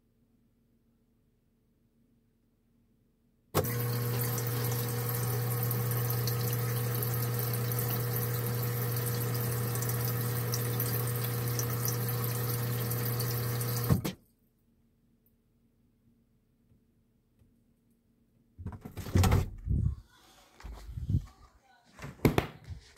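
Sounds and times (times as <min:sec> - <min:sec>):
water running into pitcher: 0:03.6 - 0:14.2.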